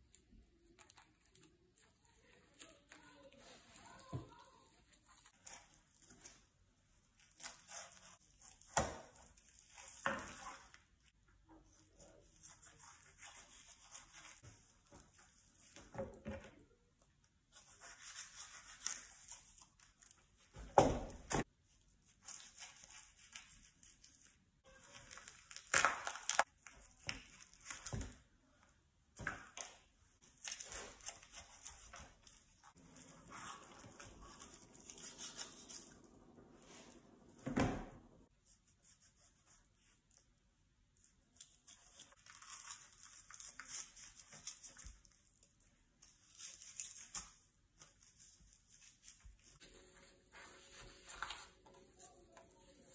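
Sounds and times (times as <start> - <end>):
wet tearing and slicing of meat: 25.0 - 26.5.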